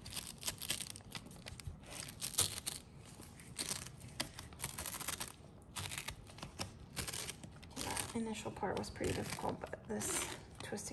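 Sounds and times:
blade crunching through pineapple: 0.0s - 3.0s, 3.6s - 8.2s.

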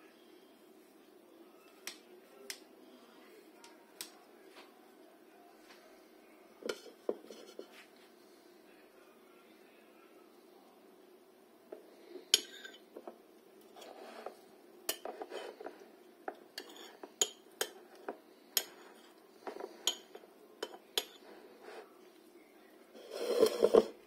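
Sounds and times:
spoon scraping: 6.6s - 7.8s, 12.2s - 12.9s, 13.6s - 15.8s, 16.6s - 21.9s, 23.0s - 24.0s.

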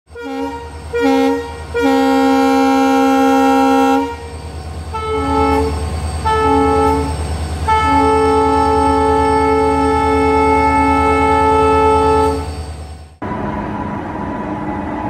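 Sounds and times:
locomotive horn blasts: 0.1s - 4.3s, 4.9s - 12.5s.

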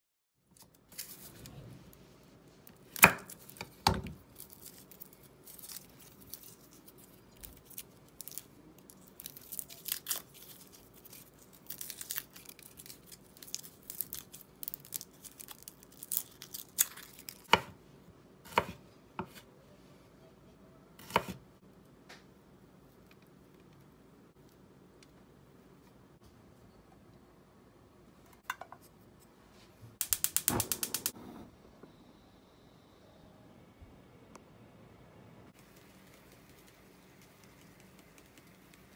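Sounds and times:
garlic skin crackling and tearing: 2.8s - 17.5s.

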